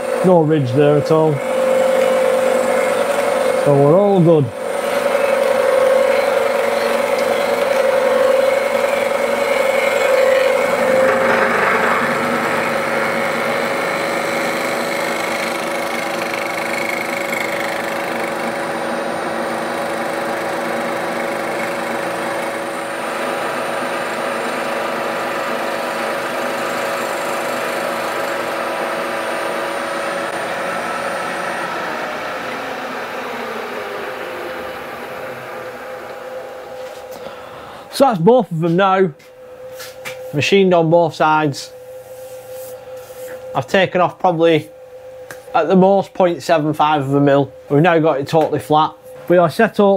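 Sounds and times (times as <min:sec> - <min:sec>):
milling machine cutting steel: 0:00.0 - 0:37.1.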